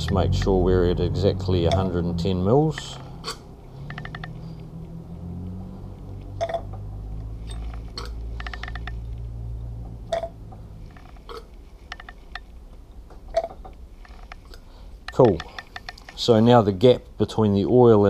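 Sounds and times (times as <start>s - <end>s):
low steady drone: 0.0s - 18.0s
sharp clicks: 2.8s - 4.4s, 7.5s - 9.1s, 14.0s - 16.2s
rapid ticking: 3.8s - 4.6s, 7.8s - 9.1s, 11.9s - 12.6s, 14.0s - 16.3s.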